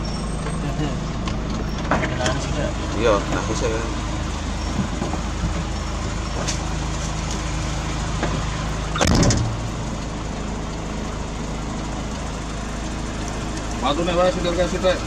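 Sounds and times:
diesel engine running: 0:00.0 - 0:15.0
loud bang: 0:09.0 - 0:09.7.

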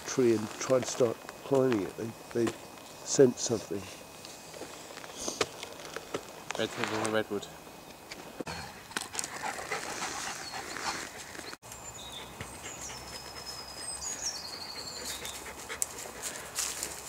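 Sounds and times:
footsteps crunching on leaf litter: 0:04.4 - 0:07.3, 0:15.9 - 0:17.0
dog panting: 0:09.1 - 0:11.5, 0:12.2 - 0:17.0
small birds singing: 0:10.2 - 0:16.4.

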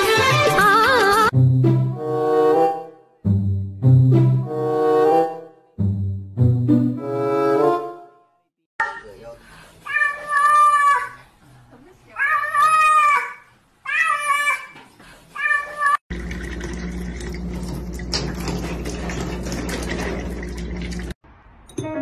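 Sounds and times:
cat meowing: 0:09.9 - 0:11.1, 0:12.2 - 0:14.8.

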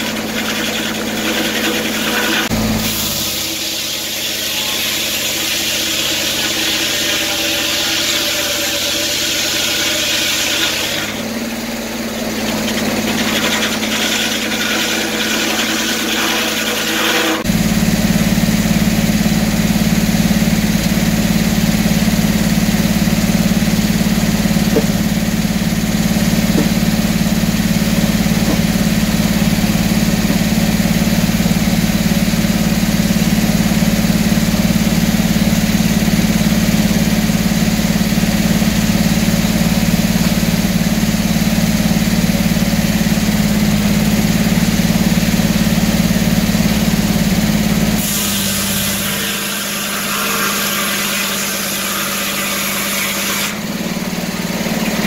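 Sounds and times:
saw blade cutting wood hiss: 0:00.0 - 0:11.2, 0:48.0 - 0:53.6
sawmill blade droning: 0:00.0 - 0:55.0.

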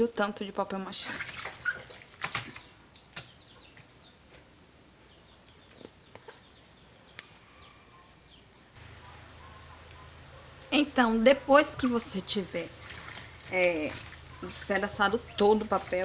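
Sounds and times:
hands squishing wet paper pulp: 0:01.0 - 0:04.0, 0:11.6 - 0:16.0
faint bird chirps: 0:05.0 - 0:10.6.

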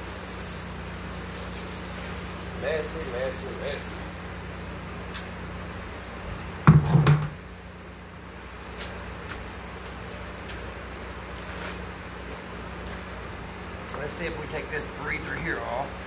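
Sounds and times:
electric fan humming: 0:00.0 - 0:16.0
loud thump: 0:06.6 - 0:07.4.

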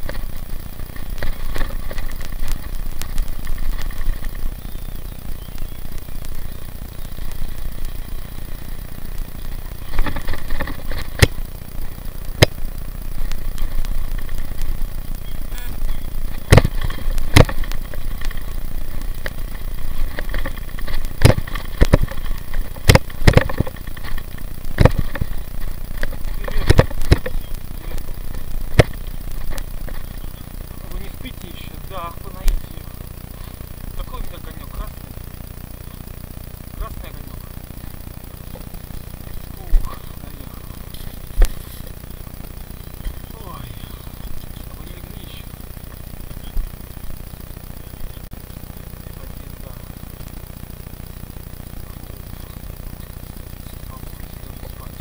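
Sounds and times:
bike knocking over bumps: 0:00.0 - 0:31.7
bicycle tyres on gravel: 0:00.0 - 0:55.0
bike rattling: 0:00.0 - 0:55.0.

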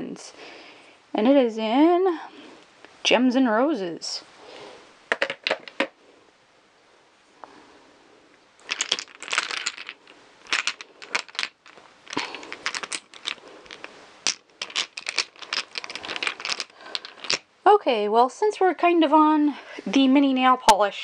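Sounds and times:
glass bottles clinking: 0:08.7 - 0:17.4.

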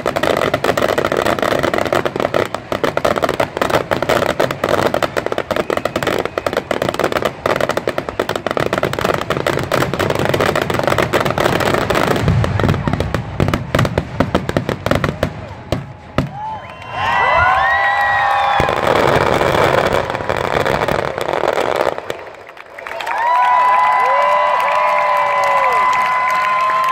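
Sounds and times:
deep fireworks booms: 0:00.0 - 0:16.6, 0:17.3 - 0:22.3
fireworks bangs and crackling: 0:00.0 - 0:22.6.

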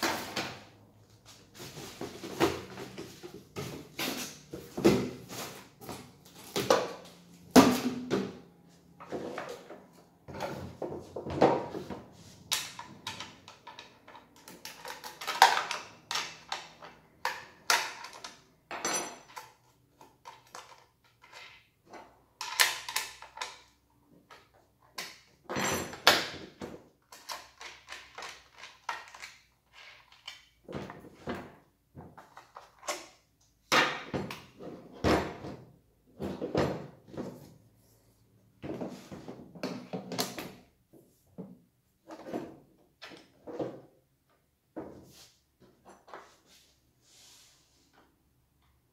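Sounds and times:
tools clicking and clunking on workbench: 0:00.0 - 0:37.6.

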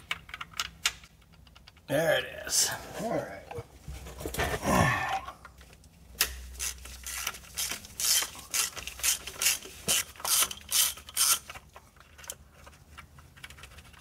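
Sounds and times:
hand ratchet clicking: 0:06.2 - 0:11.6.

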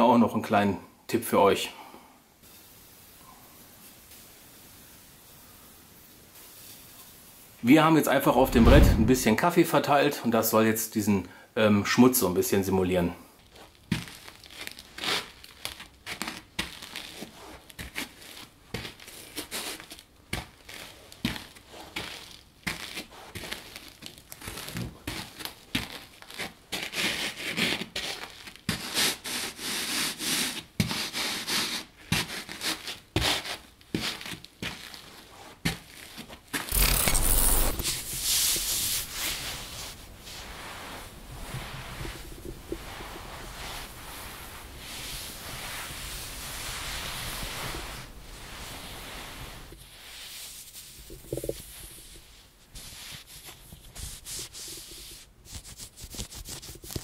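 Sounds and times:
fabric sleeve rubbing: 0:08.3 - 0:09.3, 0:34.9 - 0:57.0
short loud burst: 0:08.4 - 0:09.4, 0:36.7 - 0:38.1.

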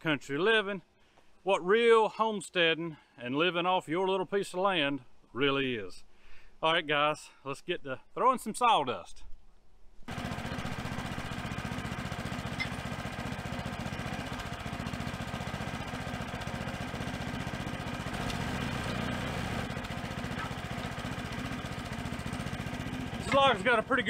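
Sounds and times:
diesel tractor engine idling: 0:10.1 - 0:24.0.

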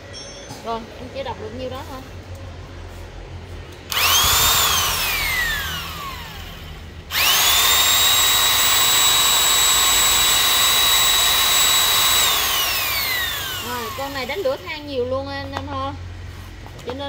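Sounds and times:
electric drill whining: 0:03.9 - 0:14.7.

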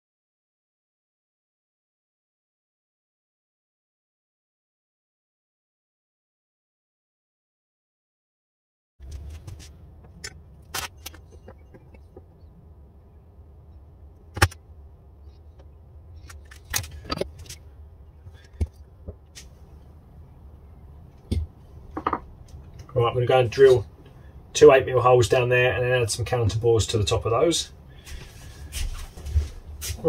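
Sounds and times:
low steady hum: 0:09.0 - 0:30.0
wooden blocks knocking: 0:21.3 - 0:22.3.

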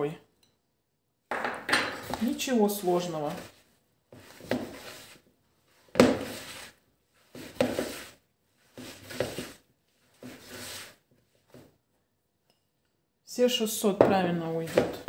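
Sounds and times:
hands kneading dough in plastic bowl: 0:02.0 - 0:11.9, 0:13.8 - 0:15.0.

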